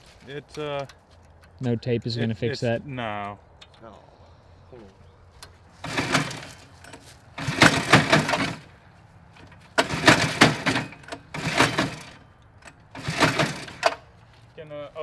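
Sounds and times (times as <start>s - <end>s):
engine pull-starter rasping: 5.4s - 8.8s, 9.4s - 14.1s.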